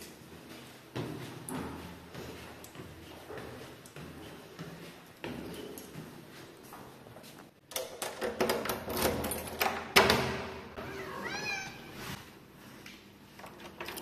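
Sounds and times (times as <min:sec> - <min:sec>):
cat meowing: 0:10.8 - 0:12.0.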